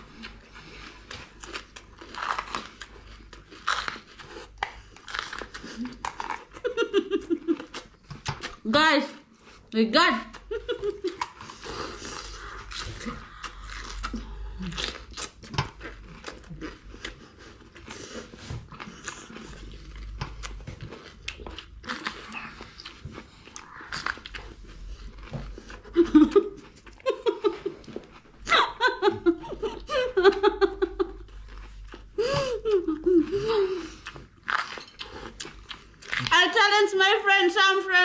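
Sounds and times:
crunching bell pepper: 0.1s - 6.7s, 11.1s - 17.9s, 18.7s - 27.1s, 33.9s - 36.4s
people laughing: 25.9s - 31.2s.

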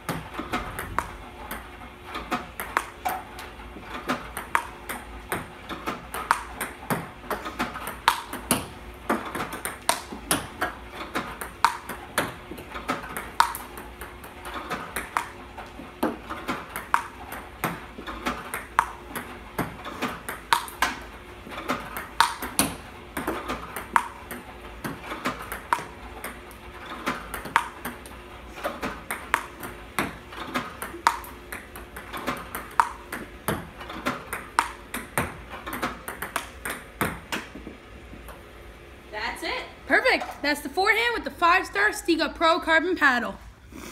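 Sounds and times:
ping pong ball clicks: 2.6s - 3.2s, 4.1s - 10.8s, 11.4s - 15.4s, 16.0s - 21.0s, 21.7s - 28.1s, 28.9s - 37.6s.

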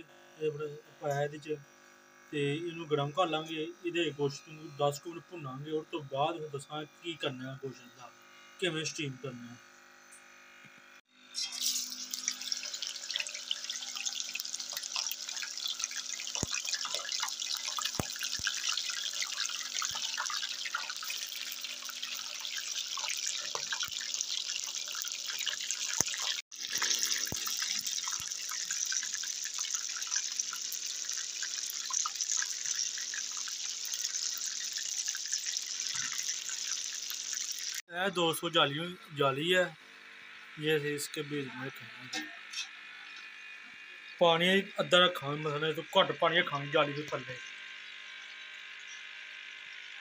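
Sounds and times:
meat sizzling in a pan: 11.3s - 37.9s.

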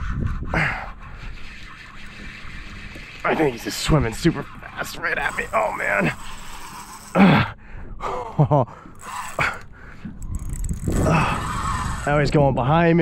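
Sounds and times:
man gasping and grunting: 10.9s - 11.7s.

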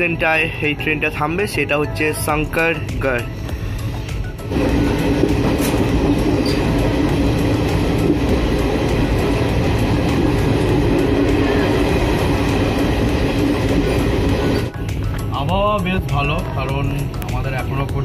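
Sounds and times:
train wheels rumbling: 3.6s - 18.0s.

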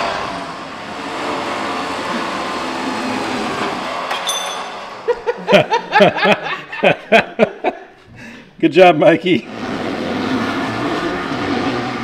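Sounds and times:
electric winch whirring: 0.0s - 6.4s, 9.4s - 12.0s
sharp metallic ping: 4.1s - 4.8s
men laughing: 5.0s - 8.5s.

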